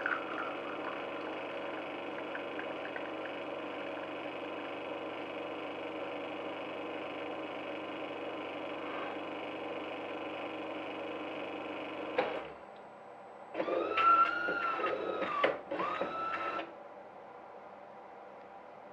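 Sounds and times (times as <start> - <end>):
espresso machine pump running: 0.0 - 12.5.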